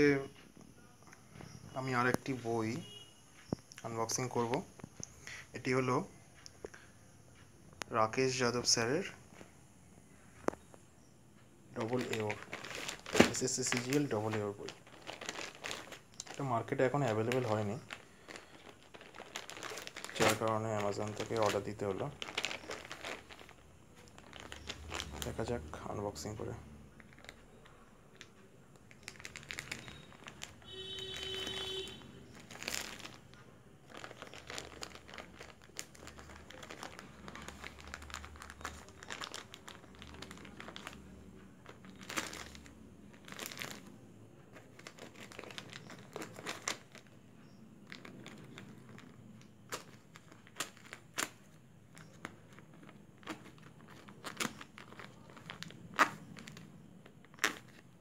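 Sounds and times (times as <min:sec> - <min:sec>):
plastic mailer crinkling: 0:11.8 - 0:58.0.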